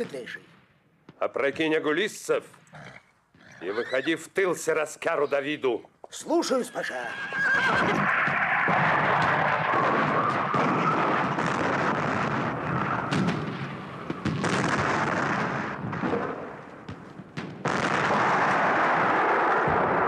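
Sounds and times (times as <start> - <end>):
sharp gunshots: 7.8 - 20.0.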